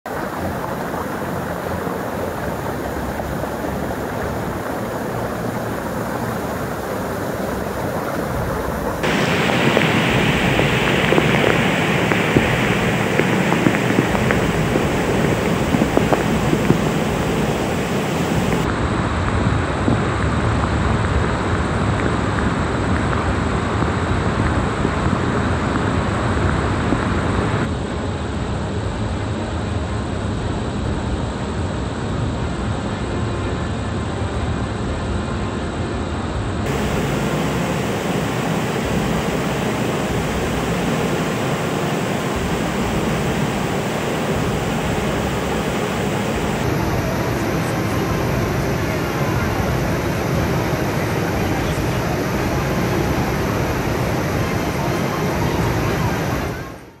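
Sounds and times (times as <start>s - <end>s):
rain: 0.0s - 27.8s, 36.6s - 57.0s
floodwater rushing: 0.1s - 18.7s, 36.7s - 56.9s
wind on microphone: 0.1s - 27.7s, 36.7s - 56.9s.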